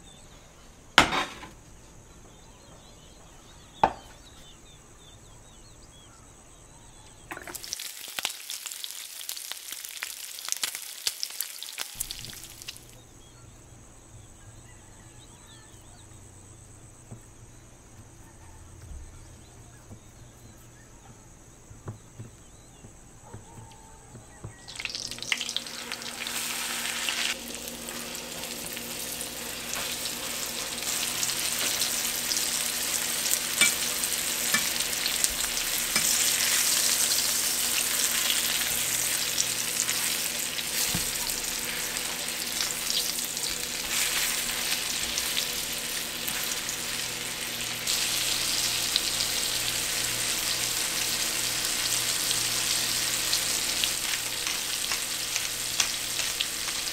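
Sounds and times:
meat frying sizzle: 7.2s - 13.0s, 24.4s - 56.9s.

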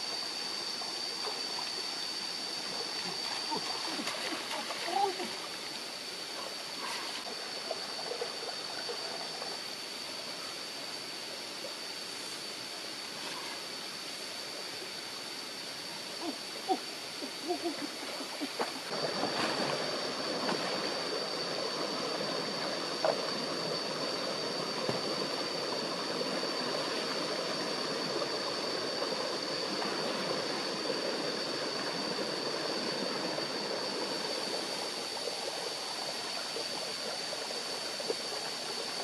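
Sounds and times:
stream running over stones: 0.0s - 39.0s
small water splashes: 2.7s - 5.6s.

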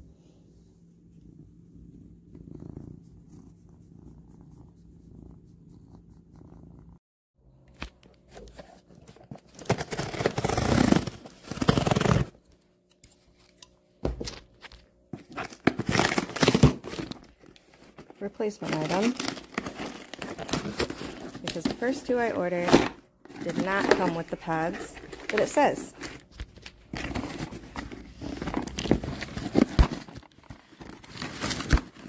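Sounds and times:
cat purring: 0.6s - 7.0s
cardboard box tearing and scraping: 9.0s - 12.4s, 15.4s - 17.2s, 18.7s - 26.3s, 26.9s - 32.0s.

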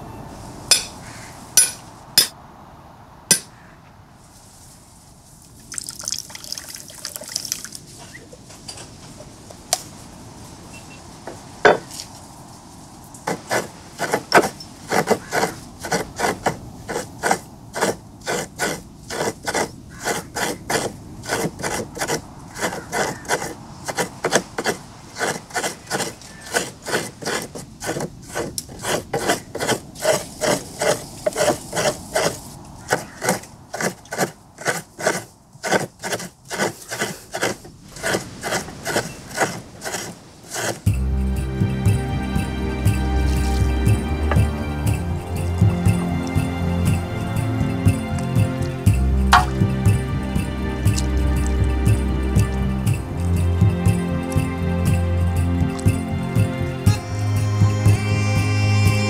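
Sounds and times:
coconut scraping on serrated blade: 13.3s - 40.8s
sharp knock: 49.3s - 49.6s.

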